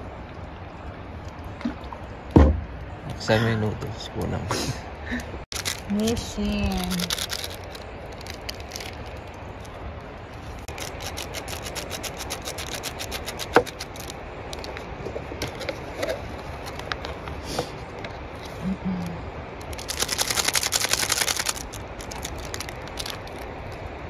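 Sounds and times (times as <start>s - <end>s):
packet tearing open: 5.5s - 5.9s, 6.7s - 9.2s, 19.6s - 23.5s
plastic packets crinkling: 5.5s - 9.8s, 10.7s - 14.8s, 19.6s - 23.8s.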